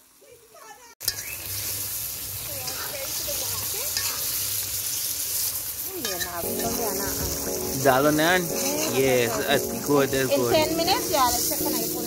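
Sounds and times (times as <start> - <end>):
curry sizzling in a pot: 0.0 - 12.0
metal spoon stirring and scraping: 2.6 - 6.4.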